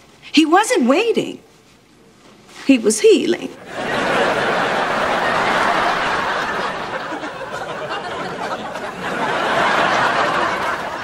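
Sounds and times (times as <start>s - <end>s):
studio audience laughing: 3.6s - 11.0s.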